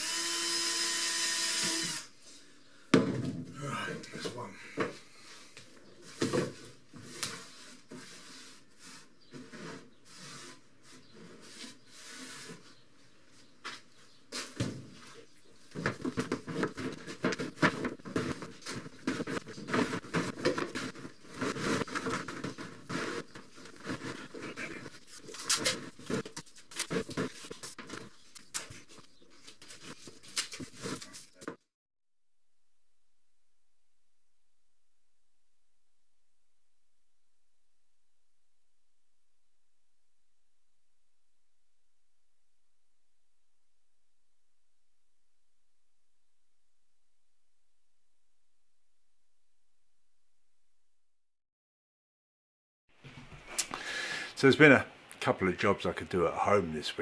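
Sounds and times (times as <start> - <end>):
rubber strip scraping on workbench: 7.0 - 12.7.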